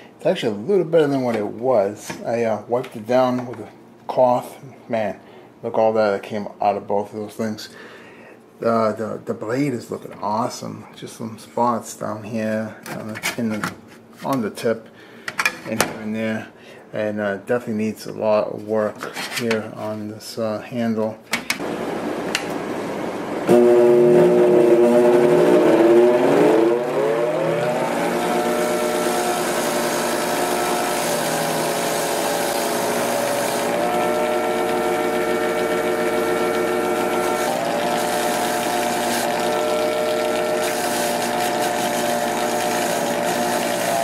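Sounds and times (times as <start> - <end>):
bench grinder motor hum: 23.5 - 44.0.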